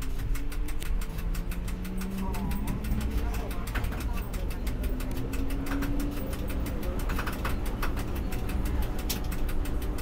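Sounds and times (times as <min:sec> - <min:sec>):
rapid clicking and rattling: 0:00.0 - 0:10.0
tram rumbling on track: 0:00.0 - 0:10.0.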